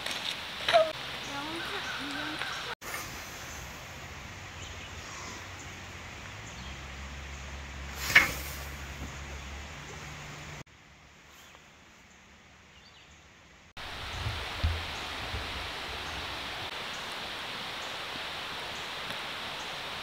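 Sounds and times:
stream rushing: 0.0s - 4.9s, 13.8s - 20.0s.

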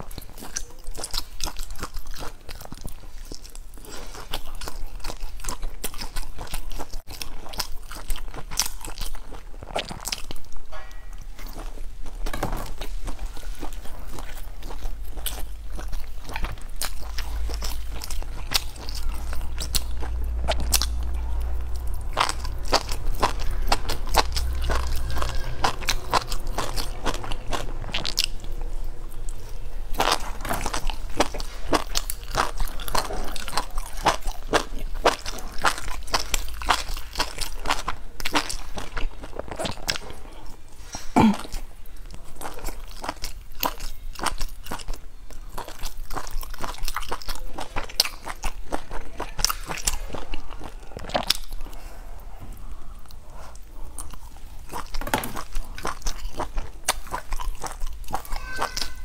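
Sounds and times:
person chewing crunchy food: 0.0s - 59.0s
low rumble: 14.6s - 34.4s.

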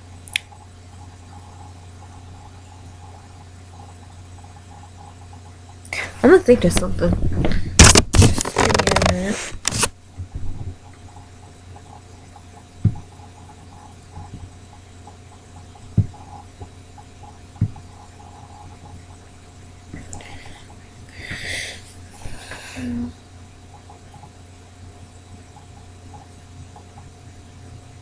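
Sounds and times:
steady electrical hum: 0.0s - 28.0s
soft low thumps: 12.8s - 13.1s, 15.9s - 16.7s, 17.6s - 17.8s.

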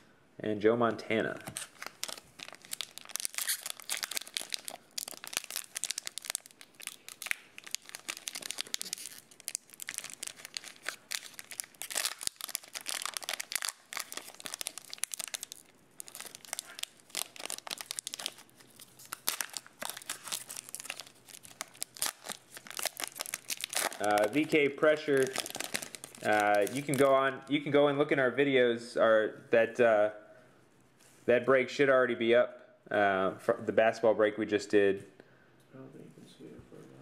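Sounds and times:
foil wrapper tearing and crinkling: 1.5s - 27.1s.

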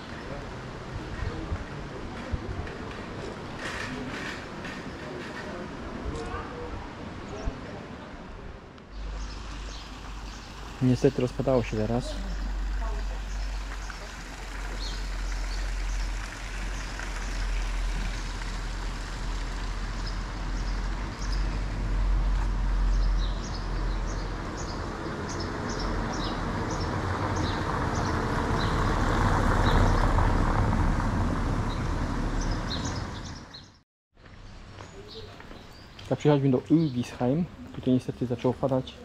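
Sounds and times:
wet traffic: 0.1s - 33.5s
rain hissing: 9.1s - 21.3s.

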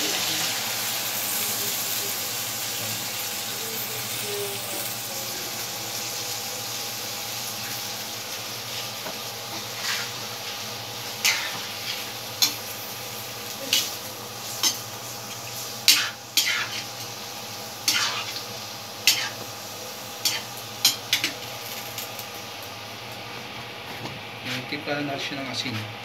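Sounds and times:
spatula scraping a pan: 9.0s - 10.3s, 11.2s - 12.7s, 13.7s - 17.1s, 17.8s - 18.4s, 19.0s - 19.4s.

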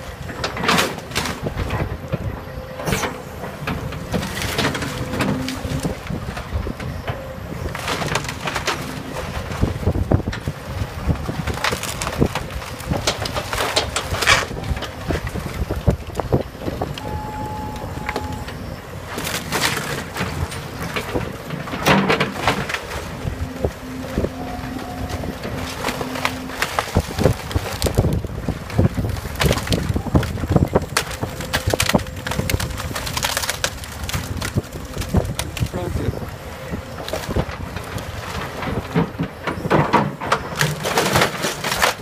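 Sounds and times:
wood cracking and splintering: 0.0s - 2.2s, 2.9s - 17.3s, 19.0s - 42.0s
excavator bucket crunching debris: 0.0s - 42.0s
excavator engine and hydraulics: 0.0s - 42.0s
wind buffeting microphone: 3.3s - 19.1s, 22.9s - 39.8s.

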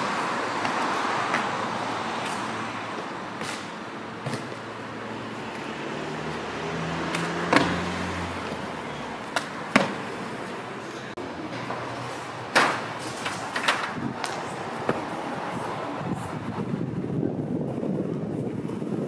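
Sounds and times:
outdoor street noise: 0.0s - 19.0s
hands and feet thudding on concrete: 9.3s - 10.2s.

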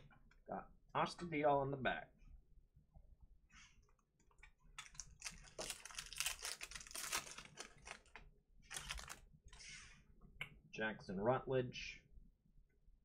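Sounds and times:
foil wrapper crinkling and tearing: 4.8s - 9.2s.

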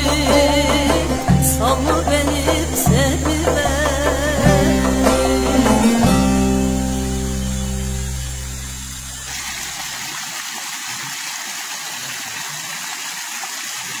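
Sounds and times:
plucked-string folk music: 0.0s - 9.3s
stream running down small waterfall: 0.0s - 14.0s.

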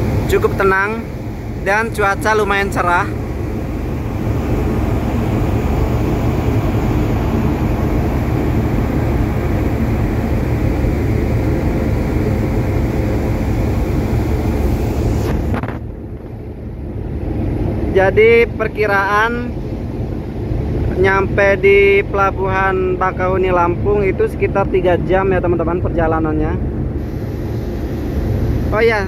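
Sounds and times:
ferry engine rumble: 0.0s - 29.0s
wind on microphone: 3.2s - 17.9s.

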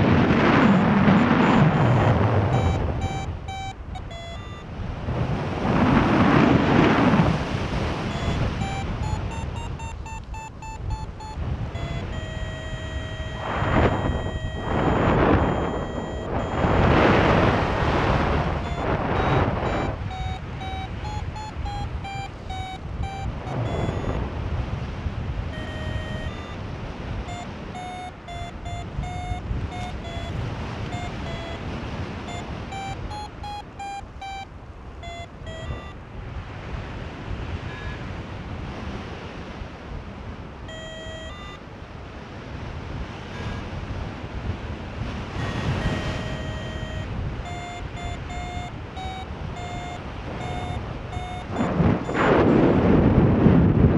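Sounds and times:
variometer beeping: 0.0s - 4.9s, 7.4s - 24.8s, 25.4s - 36.0s, 37.5s - 38.2s, 40.6s - 41.6s, 43.1s - 43.8s, 45.2s - 52.6s
wind noise on microphone: 0.0s - 53.9s.

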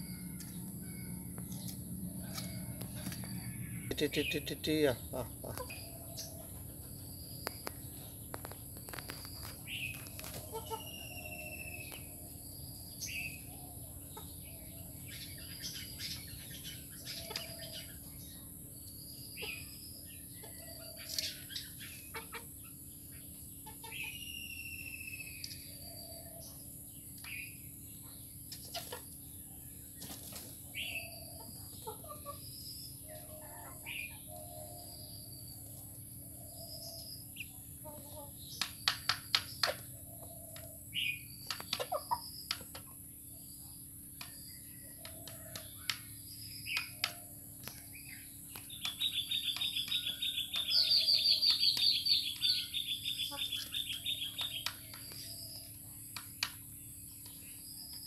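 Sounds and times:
bird chirps and whistles: 24.2s - 25.5s
beaks tapping on bowl: 48.5s - 52.7s.

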